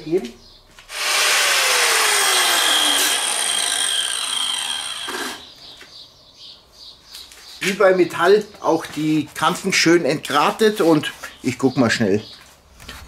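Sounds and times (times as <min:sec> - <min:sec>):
angle grinder grinding stone: 0:00.9 - 0:05.6.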